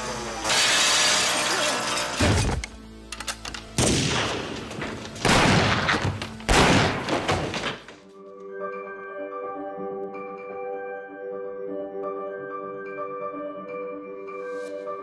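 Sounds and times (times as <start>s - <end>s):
gunfire bangs: 3.8s - 7.8s.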